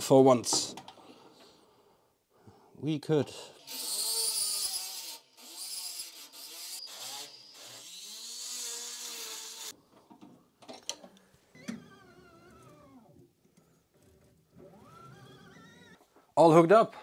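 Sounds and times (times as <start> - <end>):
rotary tool drilling sheet metal: 3.6 - 9.8, 14.6 - 16.0.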